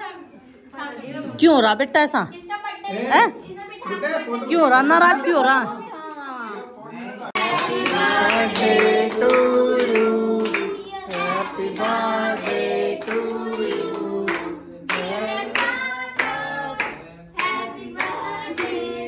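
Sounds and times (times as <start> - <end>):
people singing a birthday song: 6.9 - 19.0
hands clapping: 7.4 - 18.9.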